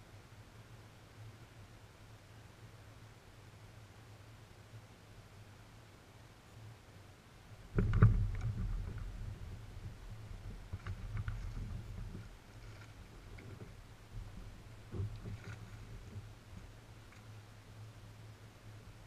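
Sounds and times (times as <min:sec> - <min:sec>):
small clicks: 0:17.0 - 0:17.4.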